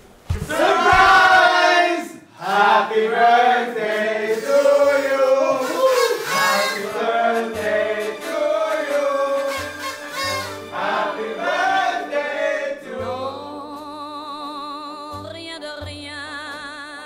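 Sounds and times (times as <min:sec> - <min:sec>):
group of voices singing: 0:00.4 - 0:13.6.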